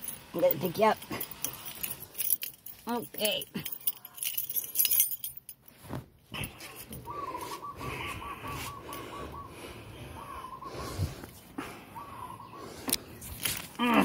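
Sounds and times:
rustling: 0.0s - 7.6s, 12.8s - 14.0s.

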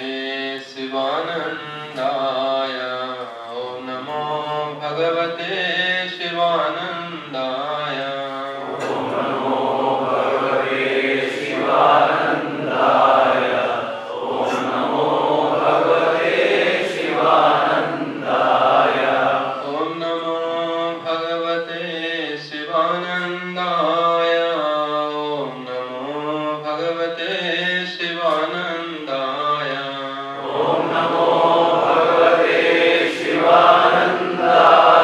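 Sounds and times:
group chanting in unison: 8.4s - 20.0s, 30.3s - 35.0s.

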